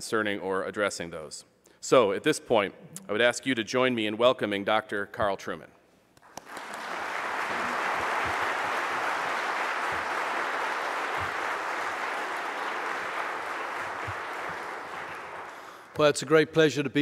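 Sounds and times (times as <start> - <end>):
audience clapping: 6.2 - 16.0.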